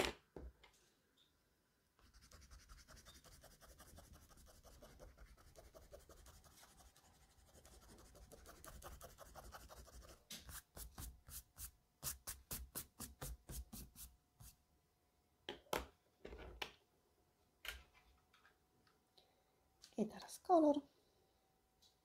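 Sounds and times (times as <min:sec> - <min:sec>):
rubbing strokes on paper: 0:02.0 - 0:14.6.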